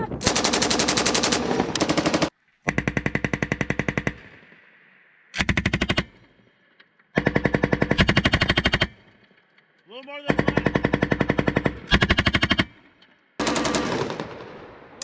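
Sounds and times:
machine gun firing automatic bursts: 0:00.2 - 0:04.2, 0:07.2 - 0:08.9, 0:10.3 - 0:12.7, 0:13.4 - 0:14.7.

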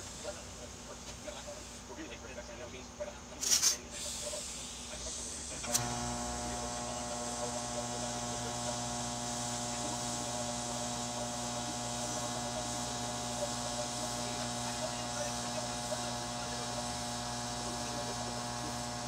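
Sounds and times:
welding arc humming and hissing: 0:00.0 - 0:02.2, 0:03.4 - 0:19.0
welding arc striking click: 0:05.6 - 0:06.1.

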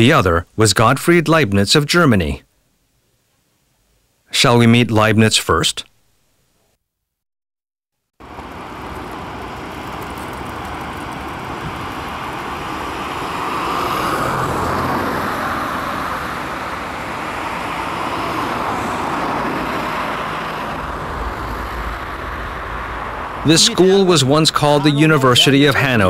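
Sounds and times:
road traffic: 0:08.2 - 0:26.0.

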